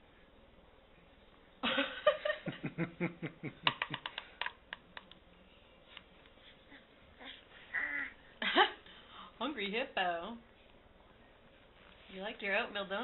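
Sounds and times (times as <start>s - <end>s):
baby grunting: 6.7s - 8.2s.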